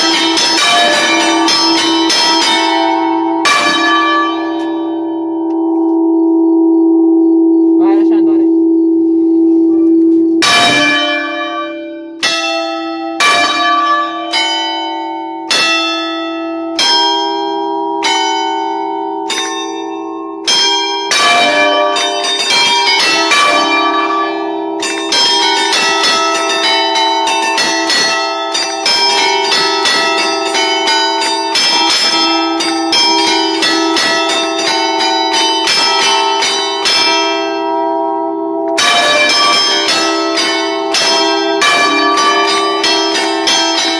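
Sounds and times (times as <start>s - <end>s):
church bells ringing: 0.0s - 43.9s.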